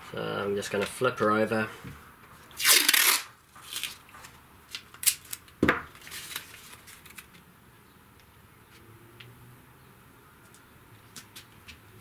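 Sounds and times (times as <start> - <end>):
tape and card rustling: 2.6 - 7.4.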